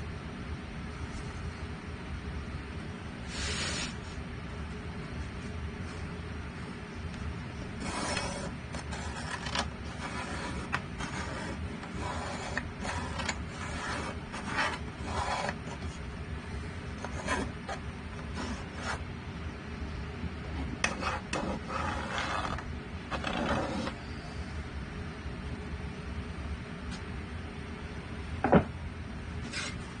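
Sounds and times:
steady low hum: 0:00.0 - 0:30.0
hand tool scraping wood: 0:07.8 - 0:15.9.

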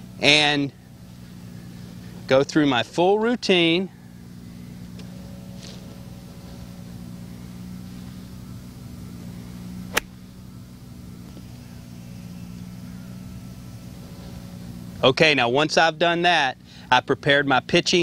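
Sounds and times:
low mechanical hum: 0:00.0 - 0:18.0
golf club striking ball: 0:09.8 - 0:10.4.

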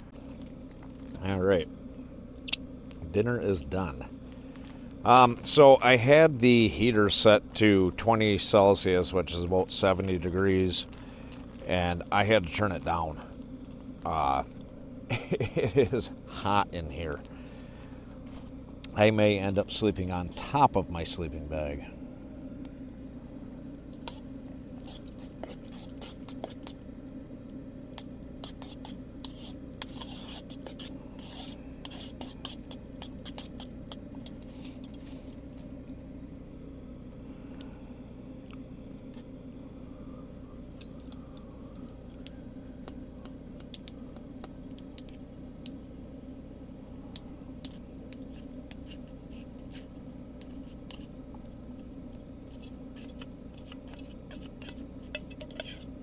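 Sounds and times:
air heater humming: 0:00.0 - 0:56.0
metal utensils scraping a pot: 0:53.0 - 0:56.0.

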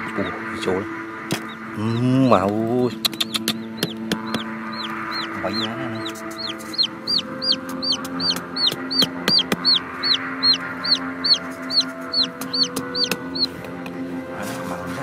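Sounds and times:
chick peeping: 0:00.0 - 0:13.8
hammer tapping stakes: 0:02.5 - 0:04.5, 0:06.0 - 0:09.8.

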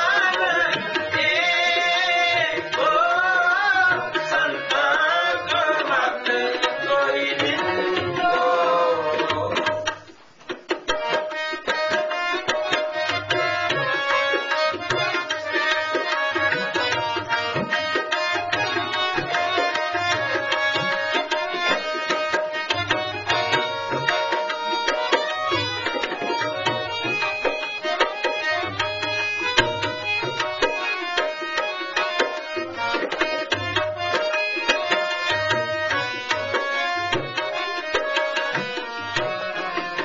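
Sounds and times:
person singing: 0:00.0 - 0:09.8
harmonium chords: 0:00.0 - 0:40.0
tabla strokes: 0:00.0 - 0:40.0.

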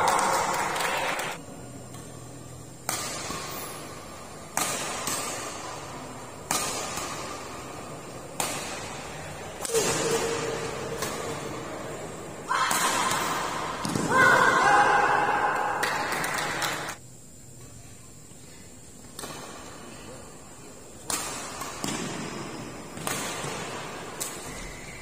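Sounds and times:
racket striking shuttlecock: 0:02.8 - 0:11.6, 0:19.1 - 0:19.8, 0:21.0 - 0:24.8.

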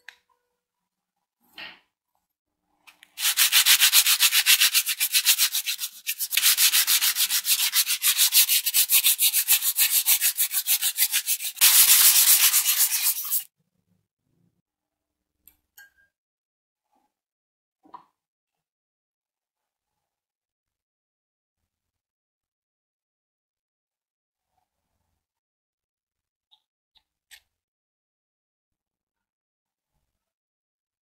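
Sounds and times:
hand file rasping on metal: 0:03.2 - 0:13.5.

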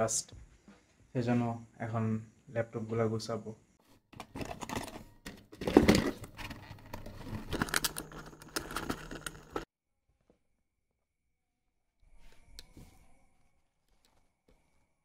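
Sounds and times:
cardboard and plastic rustling: 0:04.2 - 0:09.7.

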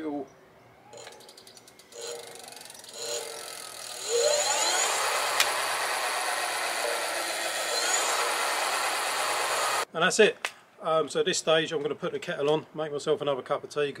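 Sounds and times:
electric hub motor whine: 0:00.9 - 0:09.9.

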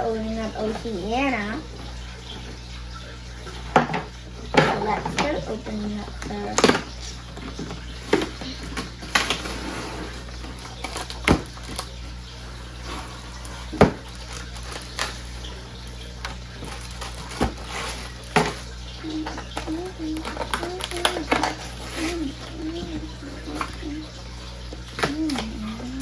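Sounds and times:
packaging rustling and crinkling: 0:07.4 - 0:12.0, 0:12.6 - 0:23.9.

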